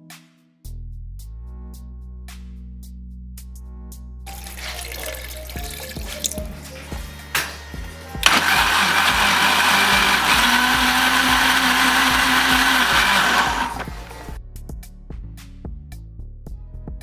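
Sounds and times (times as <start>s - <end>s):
blender motor running: 7.9s - 14.4s.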